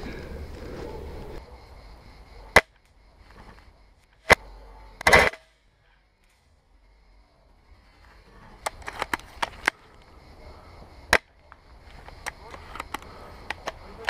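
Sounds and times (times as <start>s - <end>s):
airsoft gun shots: 5.0s - 5.6s.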